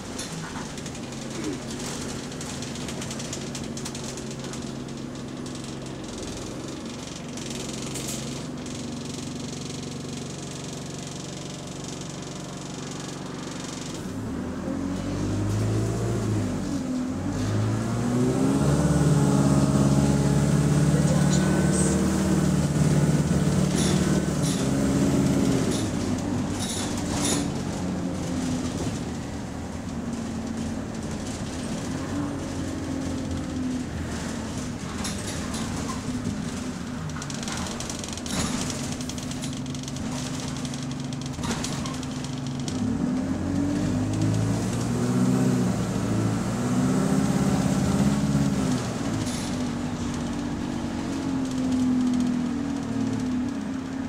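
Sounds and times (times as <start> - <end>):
bus engine accelerating: 0.0 - 54.0.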